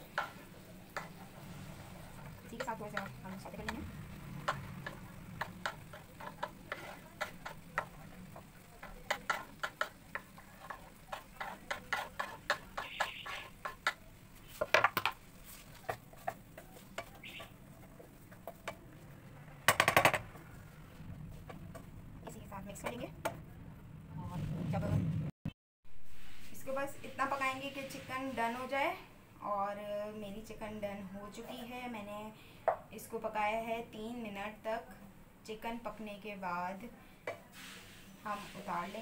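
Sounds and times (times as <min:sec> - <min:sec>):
spatula clattering in pan: 0:00.0 - 0:01.3, 0:02.2 - 0:17.6
spoon scraping on chopping board: 0:04.4 - 0:18.8.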